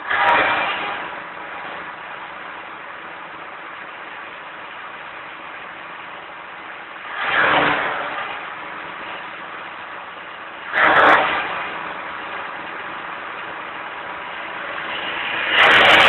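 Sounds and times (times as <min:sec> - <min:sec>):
forage harvester running: 0:00.0 - 0:16.0
chopped crop rushing out: 0:10.7 - 0:12.6, 0:14.4 - 0:16.0.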